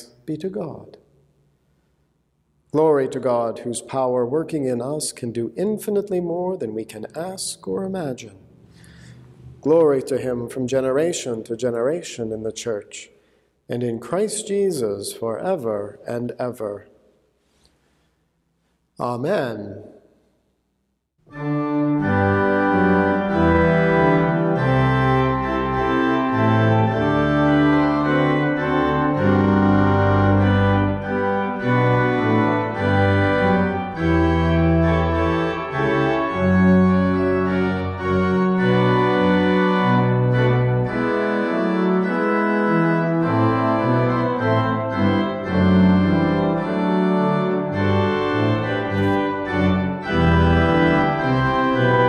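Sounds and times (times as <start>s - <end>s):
organ chords with bass line: 21.3s - 52.0s.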